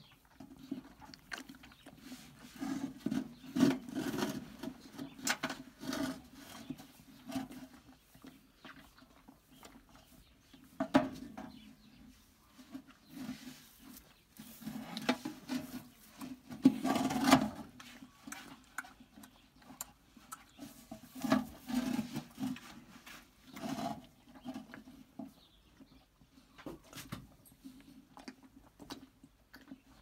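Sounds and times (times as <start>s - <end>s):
calf slurping and gulping: 0.6s - 2.9s.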